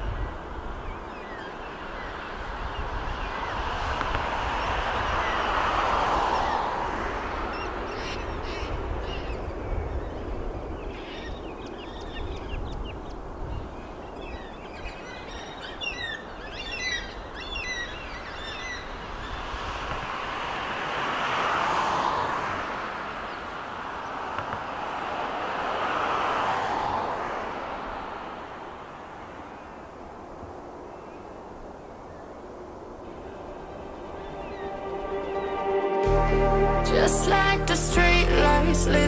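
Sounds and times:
distant jet engines roaring: 0.0s - 11.0s, 31.4s - 36.0s.

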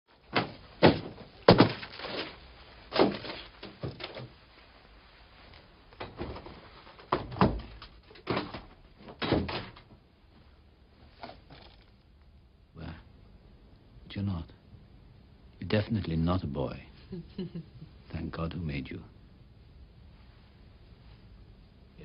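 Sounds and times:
rustling: 0.1s - 12.2s
irregular knocks and thuds: 0.2s - 4.5s, 6.0s - 10.1s.

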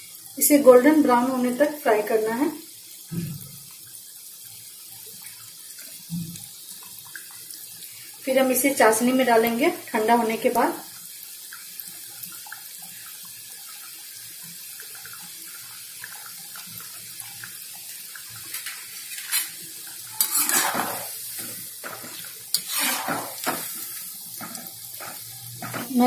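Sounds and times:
dough deep-frying in hot oil: 0.0s - 26.0s
metal spoon going into pan: 18.5s - 26.0s.

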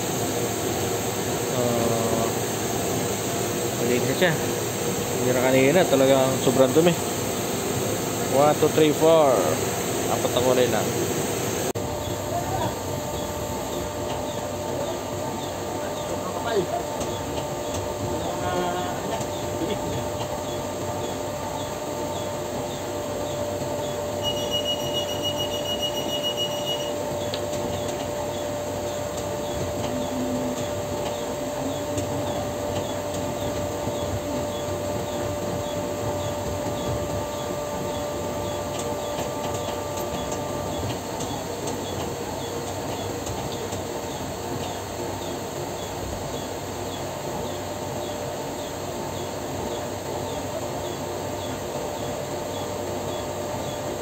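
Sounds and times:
machinery hum: 0.0s - 54.0s
held tone: 24.2s - 27.0s
pulsed electronic beep: 24.2s - 27.0s.

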